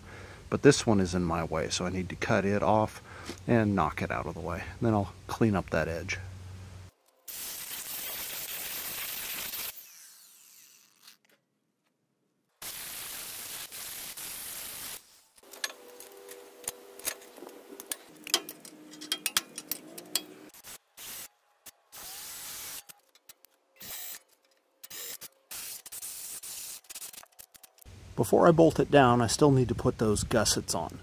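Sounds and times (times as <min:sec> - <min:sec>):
steady hiss: 0:06.6 - 0:09.7, 0:12.6 - 0:15.4
power tool scraping metal: 0:15.4 - 0:21.2.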